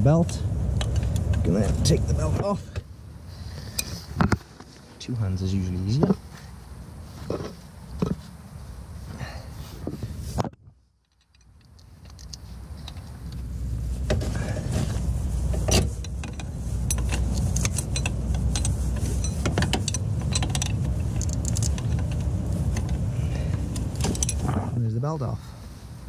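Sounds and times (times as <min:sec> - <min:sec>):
steady low rumble: 0:00.0 - 0:26.0
metallic clicks and clinks: 0:11.0 - 0:13.1, 0:16.0 - 0:23.0, 0:23.7 - 0:24.5.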